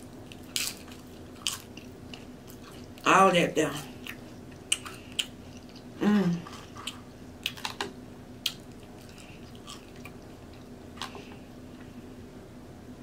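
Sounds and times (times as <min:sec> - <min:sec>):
mouth chewing chips: 0:00.0 - 0:03.1, 0:03.8 - 0:07.8, 0:08.4 - 0:11.4
person humming: 0:06.0 - 0:06.5.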